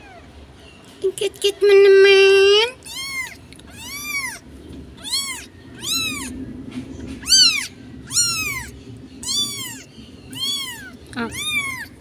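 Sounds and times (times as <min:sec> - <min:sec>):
kitten meowing: 0:00.0 - 0:00.3, 0:02.8 - 0:04.4, 0:05.0 - 0:06.4, 0:07.2 - 0:12.0.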